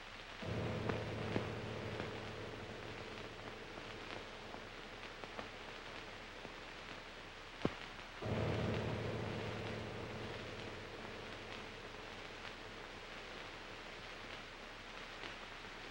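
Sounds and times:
film soundtrack hiss and crackle: 0.0 - 15.9
low held tone: 0.4 - 5.9, 8.2 - 13.0.

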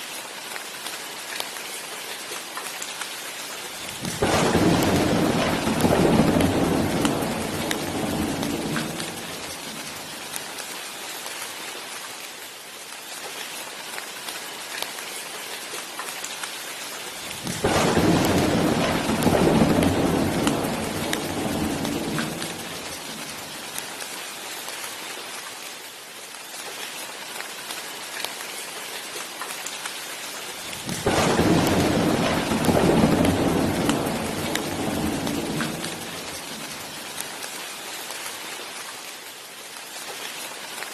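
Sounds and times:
steady rain falling: 0.0 - 40.9
thunder rolling: 3.9 - 10.3, 17.3 - 23.8, 30.7 - 37.2.

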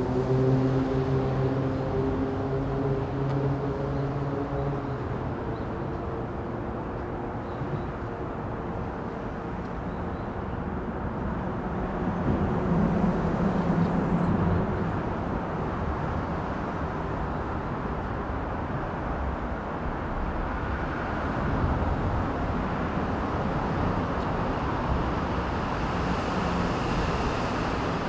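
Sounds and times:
humming engine: 0.0 - 8.9
distant vehicles rumbling: 0.0 - 28.0.

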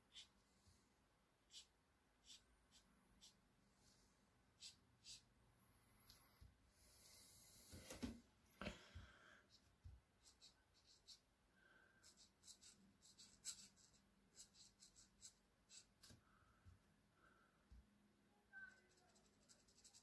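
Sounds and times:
felt-tip pen scratching on paper: 1.5 - 3.4, 18.7 - 20.0.

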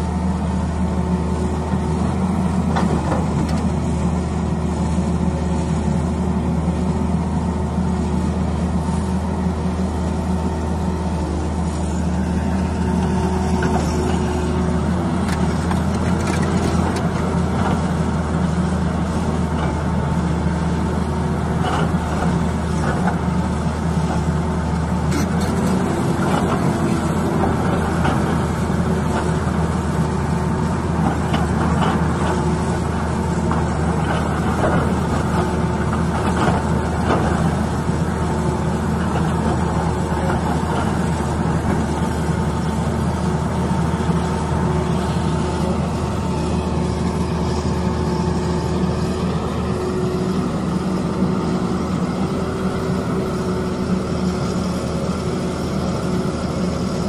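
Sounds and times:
excavator diesel engine under load: 0.0 - 57.0
hydraulic whine: 21.6 - 29.6.

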